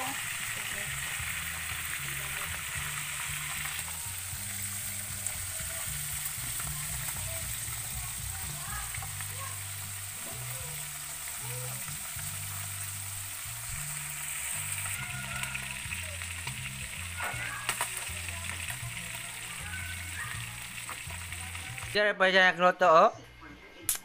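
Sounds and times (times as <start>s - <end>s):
fish sizzling in oil: 0.0s - 22.0s.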